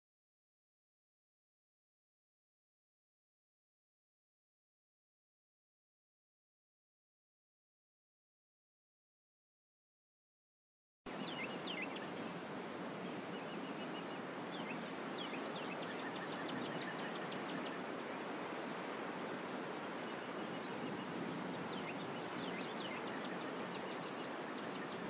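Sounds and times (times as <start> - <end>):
background hiss: 11.1 - 25.0.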